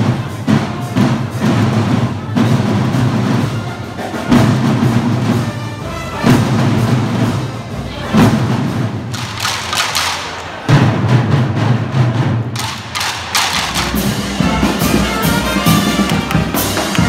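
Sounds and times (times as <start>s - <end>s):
group of drummers playing: 0.0s - 17.0s
heavy drum beat: 0.0s - 17.0s
marching band playing: 0.0s - 17.0s
sustained low brass notes: 13.8s - 17.0s.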